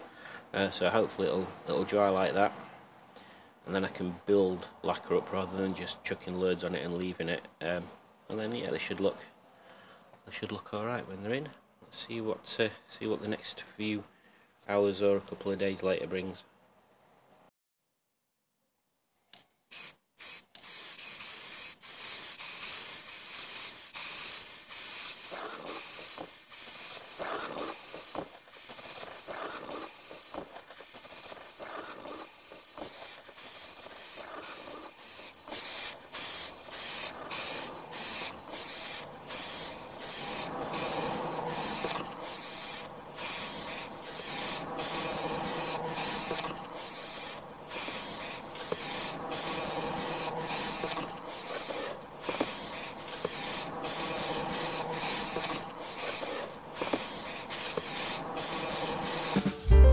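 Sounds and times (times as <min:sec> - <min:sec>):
aerosol spray can hissing: 0:19.7 - 0:59.7.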